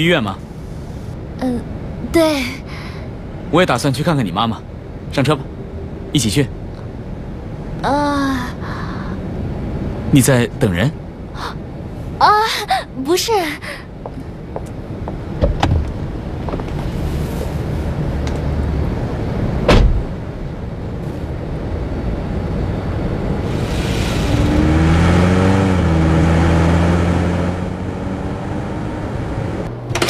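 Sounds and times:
car door shutting: 19.6 - 20.1
car engine pulling away: 23.4 - 30.0.

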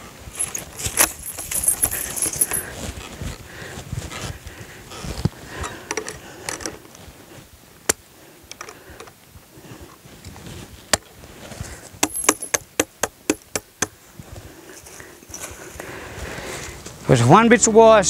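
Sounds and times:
chain and wire clinking: 0.3 - 2.9, 12.0 - 13.9, 14.7 - 15.9.

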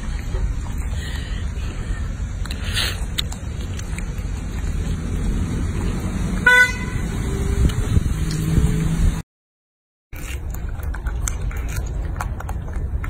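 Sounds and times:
vehicle horn toot: 6.4 - 7.2.

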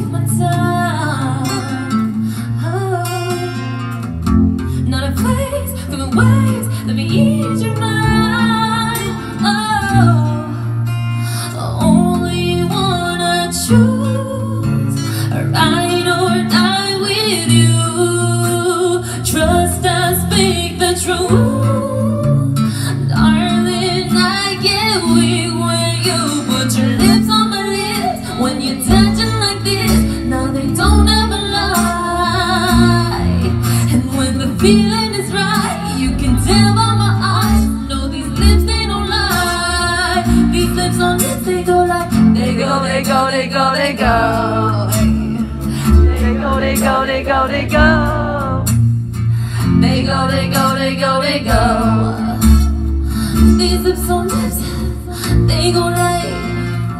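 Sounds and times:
woman singing into a microphone: 0.0 - 56.9
heavy bass: 23.1 - 50.5.

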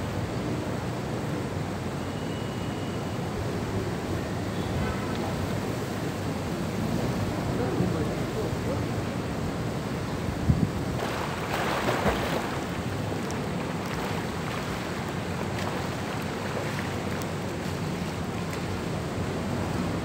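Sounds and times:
pool water splashing: 5.1 - 20.0
wind noise on microphone: 10.3 - 11.2
water lapping: 11.0 - 19.5.

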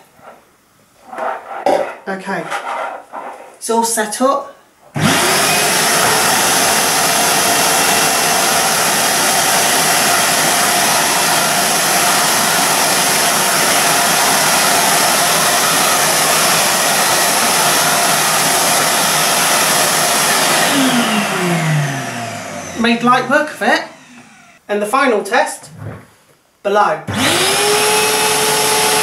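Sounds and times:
vacuum cleaner running: 5.0 - 24.6, 27.1 - 29.0
vacuum motor winding down: 5.0 - 24.6, 27.1 - 29.0.

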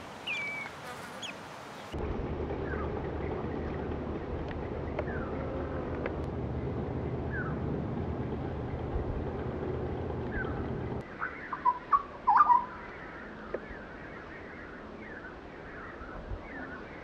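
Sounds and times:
bird chirping and whistling: 0.3 - 0.7
steady low rumble: 2.0 - 11.4.

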